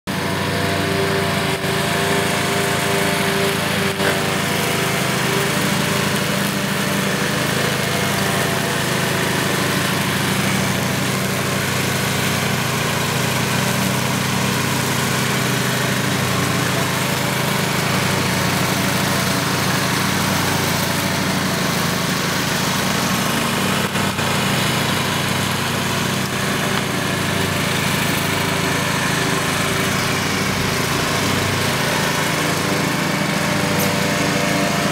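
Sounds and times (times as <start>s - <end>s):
ride-on lawn mower running: 0.0s - 34.9s.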